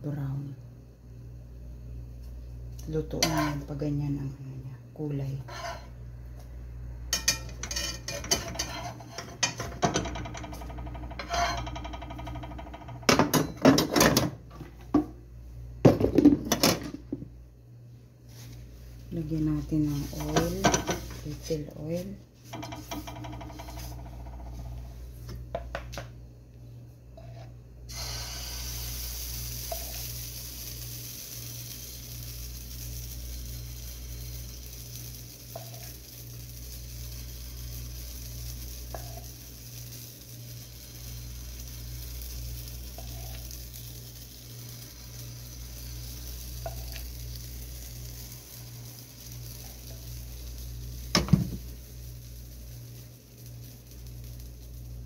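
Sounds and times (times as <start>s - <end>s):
batter sizzling in hot oil: 7.1s - 12.9s, 27.2s - 55.0s
low hum: 14.4s - 55.0s.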